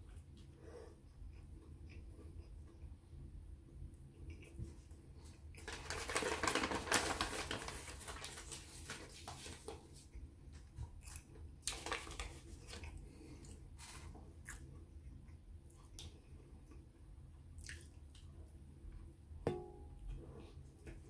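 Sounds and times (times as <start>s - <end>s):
paper wrapper crinkling: 5.6s - 10.0s, 11.1s - 12.9s.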